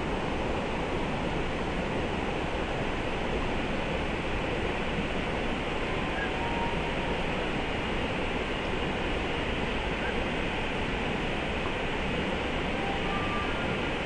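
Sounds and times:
creek water rushing: 0.0 - 14.0.

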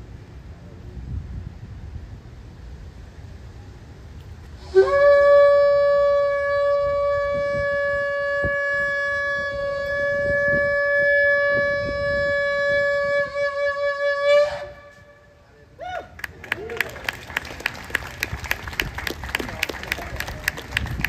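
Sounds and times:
shofar blast: 4.6 - 15.5.

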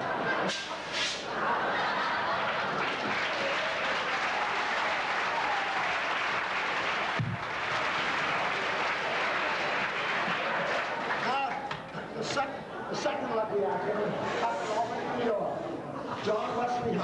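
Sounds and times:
audience applauding: 1.6 - 11.7.

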